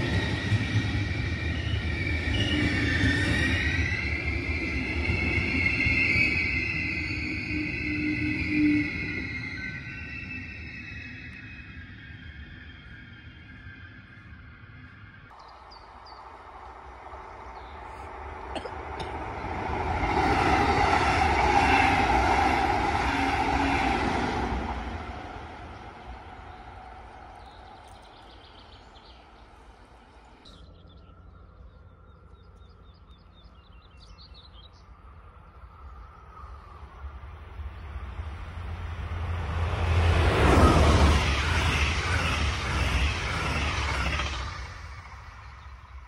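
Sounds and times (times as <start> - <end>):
train passing: 0.0 - 46.0
birds chirping: 15.3 - 19.7, 26.0 - 38.2.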